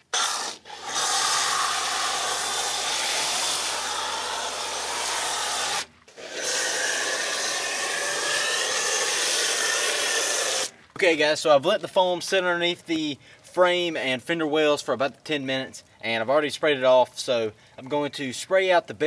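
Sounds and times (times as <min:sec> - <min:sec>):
foam cannon spraying hiss: 0:00.0 - 0:10.7.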